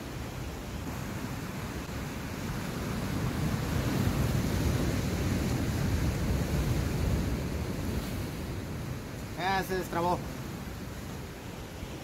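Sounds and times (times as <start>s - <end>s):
wind rumble on microphone: 0.0s - 9.4s
surf breaking over rocks: 0.8s - 12.0s.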